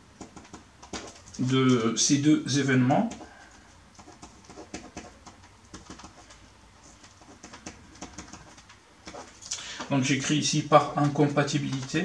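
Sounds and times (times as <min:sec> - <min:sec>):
faint low hum: 0:00.0 - 0:12.0
pen scratching on paper: 0:04.0 - 0:09.4.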